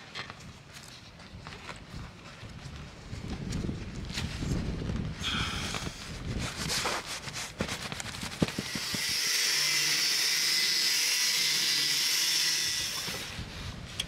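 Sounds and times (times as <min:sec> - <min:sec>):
angle grinder cutting steel: 0:08.5 - 0:13.4.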